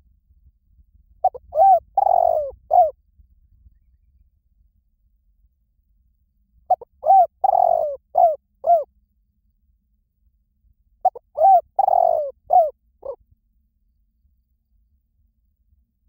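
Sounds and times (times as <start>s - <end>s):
dove cooing: 1.2s - 3.0s, 6.7s - 8.9s, 11.0s - 13.2s.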